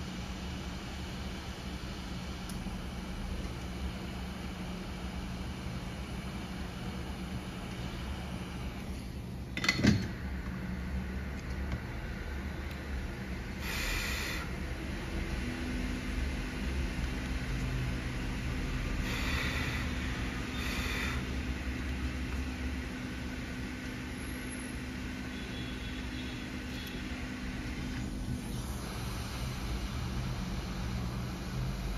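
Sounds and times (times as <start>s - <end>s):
low mechanical hum: 0.0s - 31.9s
short hissing bursts: 13.6s - 14.5s, 19.0s - 21.4s.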